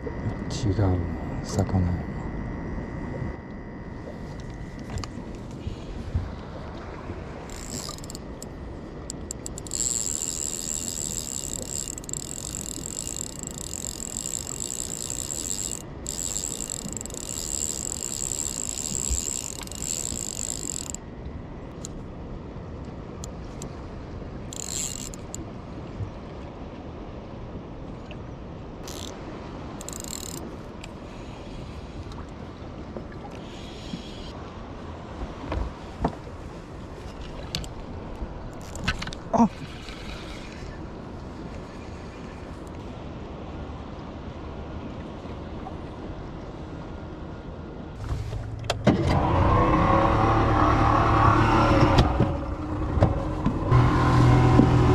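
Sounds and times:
fishing reel drag buzzing: 0:07.4 - 0:21.0, 0:24.5 - 0:25.4, 0:28.8 - 0:29.2, 0:29.8 - 0:30.5, 0:33.3 - 0:34.4, 0:38.5 - 0:38.9.

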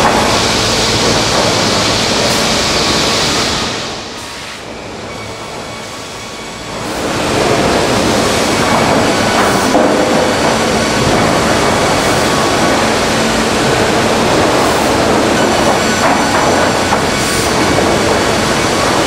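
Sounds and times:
timber machine cutter heads running: 0:00.0 - 0:19.0.

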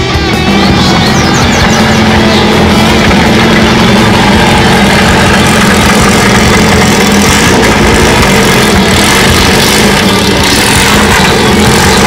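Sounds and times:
car engine running at low revs: 0:00.0 - 0:12.0.

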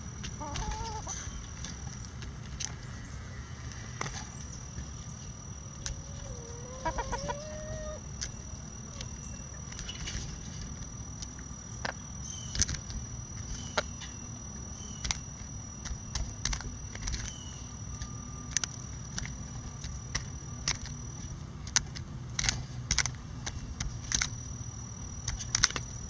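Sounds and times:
chickens pecking cabbage: 0:00.2 - 0:02.9, 0:05.7 - 0:11.4, 0:14.9 - 0:24.4
low chicken call: 0:00.4 - 0:01.2, 0:05.9 - 0:08.1.

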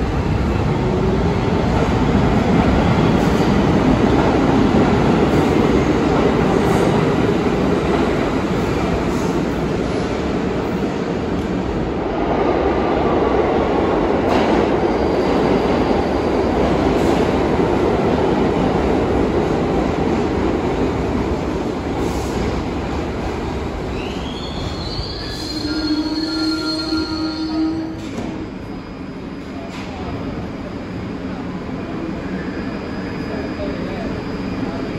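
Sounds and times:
subway train rumbling on rails: 0:00.0 - 0:34.9.

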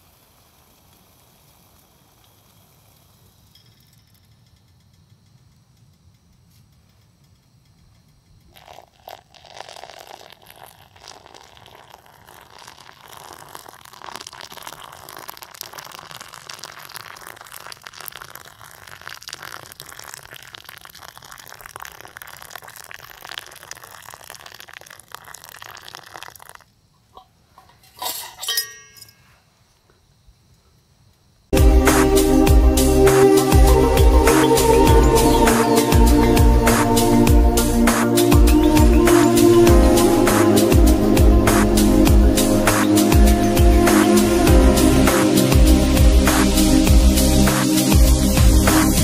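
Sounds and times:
metal clinks: 0:03.5 - 0:05.1, 0:27.6 - 0:29.4
water pouring onto coffee grounds: 0:08.5 - 0:26.7.

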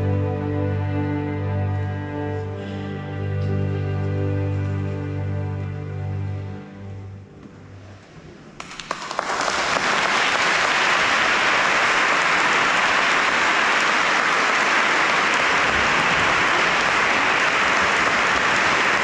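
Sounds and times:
music: 0:00.0 - 0:08.6
audience applauding: 0:08.6 - 0:19.0.

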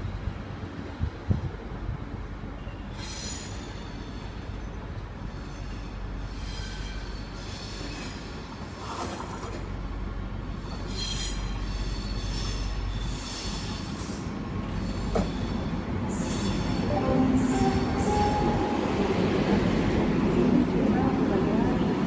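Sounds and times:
train rumble: 0:00.0 - 0:22.0
train wheels squealing: 0:02.6 - 0:09.5, 0:10.5 - 0:18.5.

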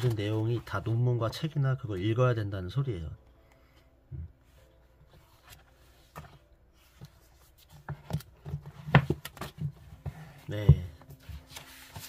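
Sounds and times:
book pages flipping: 0:00.0 - 0:01.5, 0:04.5 - 0:12.0.

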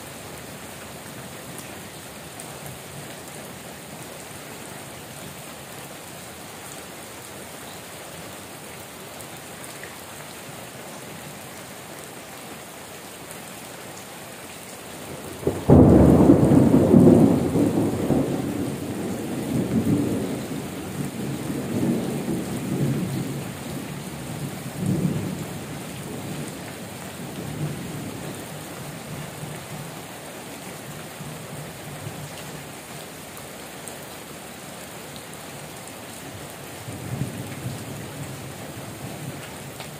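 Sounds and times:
heavy rain: 0:00.0 - 0:39.9
thunder rumbling: 0:15.4 - 0:23.4.

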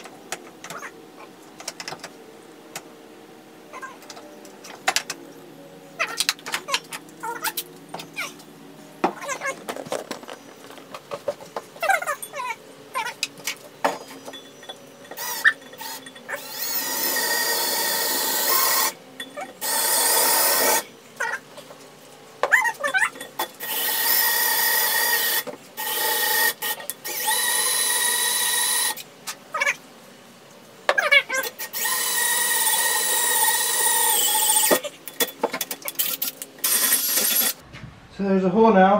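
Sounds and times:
cordless drill whining into steel: 0:14.4 - 0:19.0, 0:19.6 - 0:20.8, 0:23.6 - 0:29.0, 0:31.6 - 0:34.8, 0:36.0 - 0:37.6.

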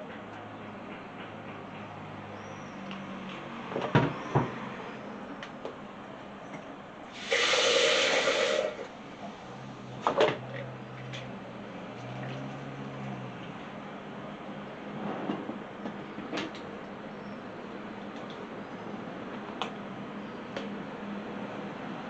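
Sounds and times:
loud rushing hiss: 0:07.1 - 0:08.9.

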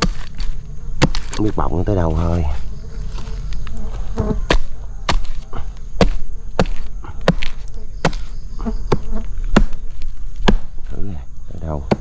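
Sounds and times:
blade chopping wood: 0:00.0 - 0:01.5, 0:04.5 - 0:05.4, 0:06.0 - 0:08.3, 0:08.9 - 0:10.7
insects buzzing faintly: 0:00.0 - 0:12.0.

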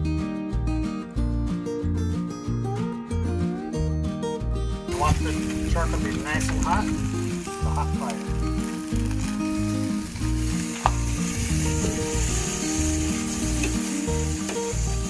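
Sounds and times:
background music: 0:00.0 - 0:15.0
ribs sizzling on a grill: 0:04.9 - 0:15.0.

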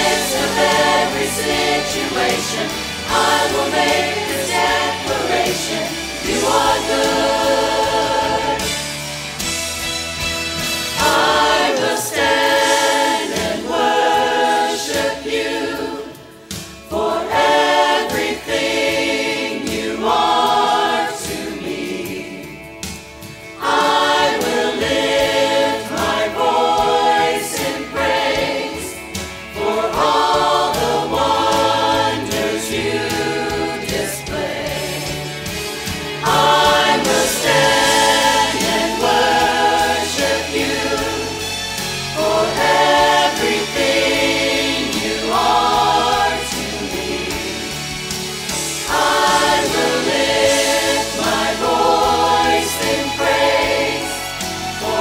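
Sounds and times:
choir singing with instruments: 0:00.0 - 0:55.0.

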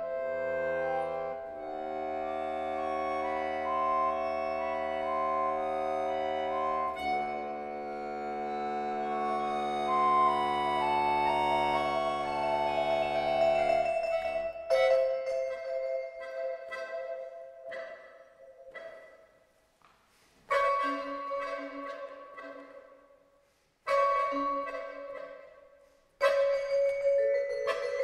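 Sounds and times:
accordion sustained chords: 0:00.0 - 0:19.0
accordion short high notes: 0:00.0 - 0:19.1.

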